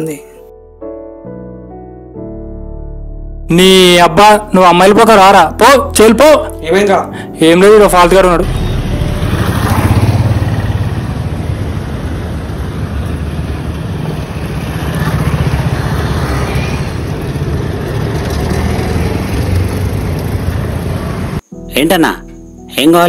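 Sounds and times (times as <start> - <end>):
motorcycle and scooter engines: 8.4 - 21.4.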